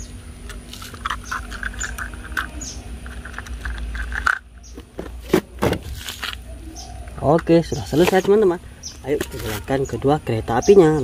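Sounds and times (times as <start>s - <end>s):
small birds chirping: 0.0s - 5.3s, 5.9s - 11.0s
plastic toy train clicks: 0.5s - 4.4s.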